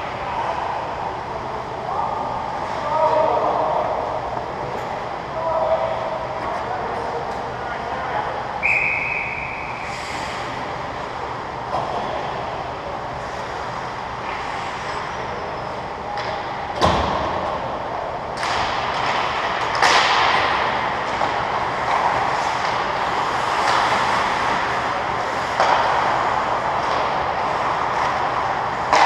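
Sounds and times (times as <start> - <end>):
skate blades scraping ice: 21.1 - 29.0.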